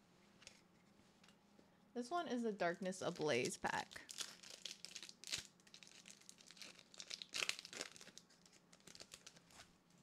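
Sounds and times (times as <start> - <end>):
foil wrapper crinkling and tearing: 3.4 - 9.7.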